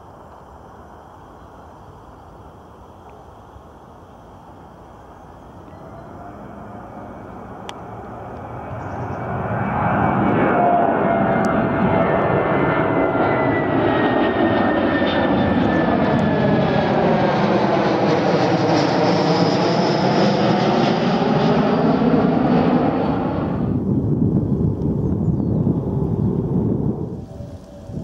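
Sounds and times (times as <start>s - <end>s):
jet aircraft roar passing overhead: 4.4s - 28.0s.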